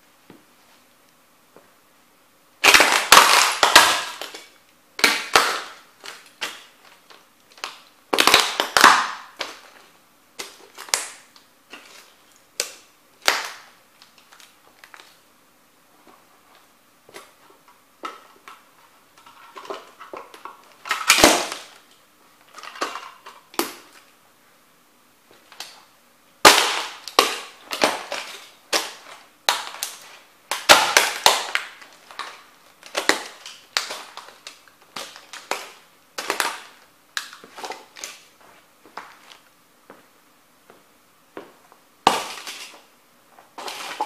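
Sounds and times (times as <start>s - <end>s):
model houses cracking under stomping: 2.6s - 4.4s, 5.0s - 9.8s, 20.2s - 21.8s, 26.4s - 36.8s.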